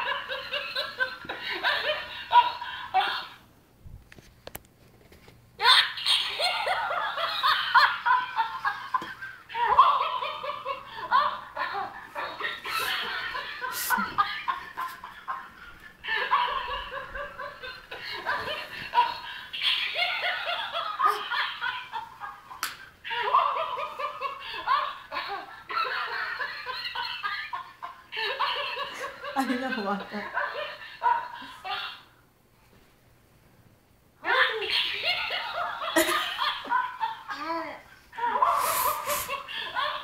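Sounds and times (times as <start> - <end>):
toy monkey recorded laugh: 5.6 - 15.4, 16.0 - 29.6, 30.2 - 32.1, 34.3 - 37.4.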